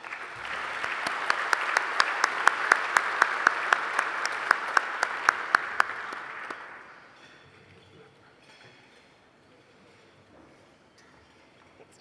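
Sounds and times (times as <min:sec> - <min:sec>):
nearby hands clapping sharply: 0:00.0 - 0:07.0
audience applauding: 0:00.0 - 0:07.1.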